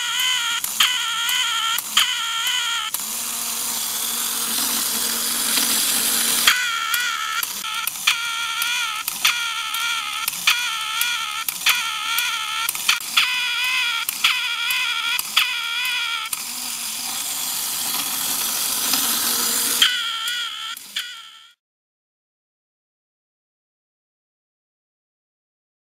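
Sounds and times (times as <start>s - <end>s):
clockwork toy duck quacking: 0.0s - 3.0s, 6.4s - 16.4s, 19.8s - 21.6s
clockwork mechanism clicks: 0.0s - 21.6s
clockwork whirring: 0.0s - 21.6s.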